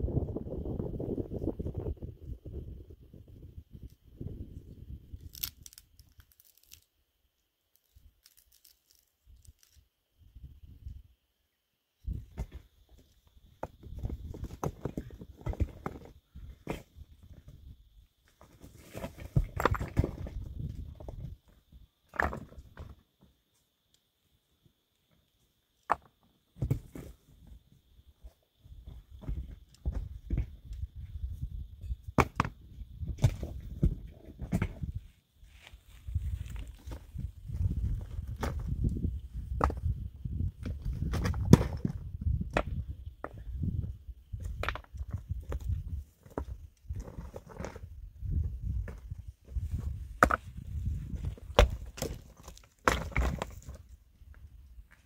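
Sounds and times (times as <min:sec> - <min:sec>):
dry twigs crackling and snapping: 0:05.2 - 0:06.9, 0:07.7 - 0:09.8
footsteps on rocky ground: 0:34.7 - 0:43.8, 0:44.4 - 0:55.0.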